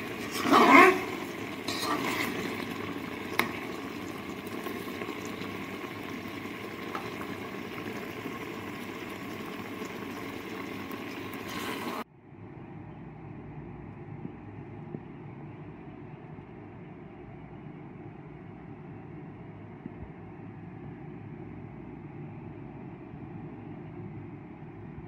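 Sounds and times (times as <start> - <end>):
syrup bubbling in a metal pan: 0.0 - 12.0.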